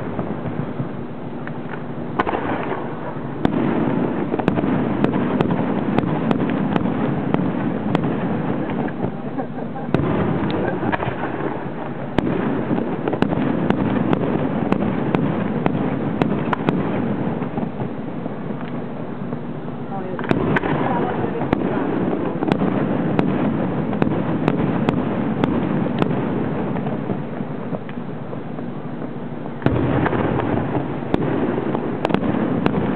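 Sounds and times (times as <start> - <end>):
continuous wash of noise: 0.0 - 32.9.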